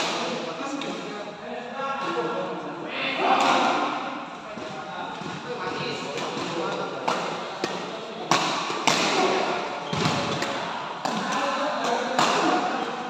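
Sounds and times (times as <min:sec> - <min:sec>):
rackets hitting shuttlecock: 0:03.2 - 0:12.8.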